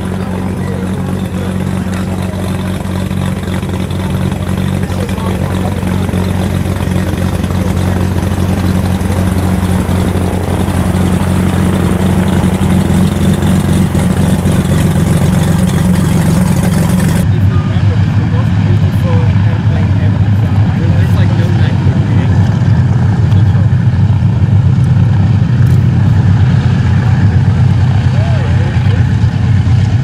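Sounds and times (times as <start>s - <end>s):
aircraft engines droning: 0.0s - 30.0s.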